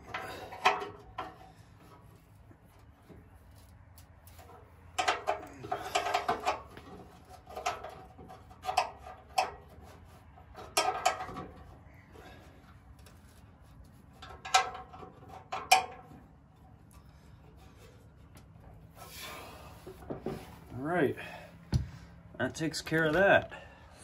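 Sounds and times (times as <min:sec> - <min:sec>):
wrench clanking on metal: 0:00.0 - 0:01.6, 0:04.4 - 0:09.8, 0:10.6 - 0:11.7.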